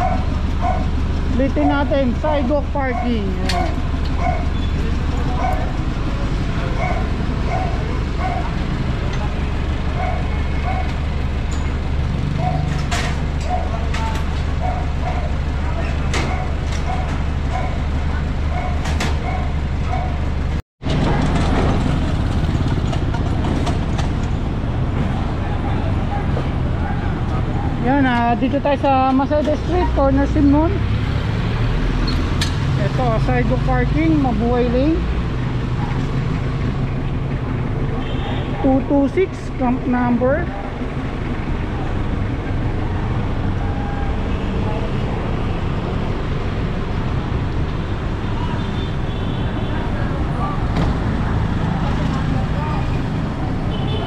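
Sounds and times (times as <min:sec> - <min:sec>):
street traffic: 0:00.0 - 0:54.0
vehicle engine running: 0:00.0 - 0:54.0.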